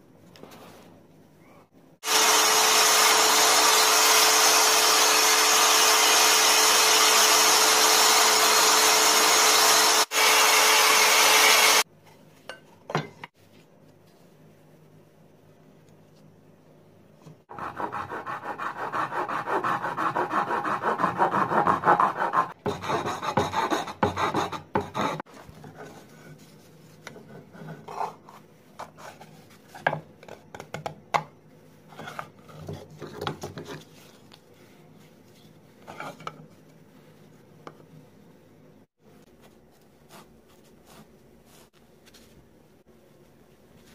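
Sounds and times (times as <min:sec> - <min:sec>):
wood being rasped by hand: 0:17.5 - 0:25.2.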